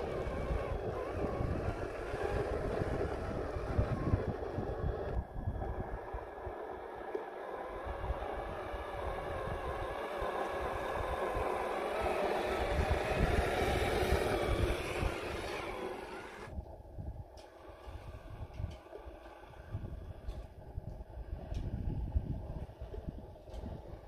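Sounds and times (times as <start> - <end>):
electric motor and gearbox whirring: 0.0 - 16.5.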